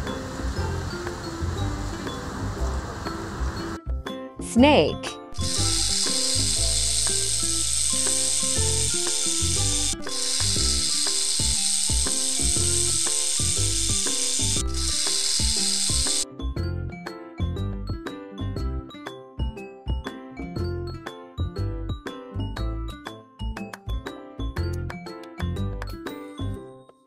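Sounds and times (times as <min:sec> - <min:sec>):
light background music: 0:00.0 - 0:27.0
snake hissing: 0:05.4 - 0:16.2.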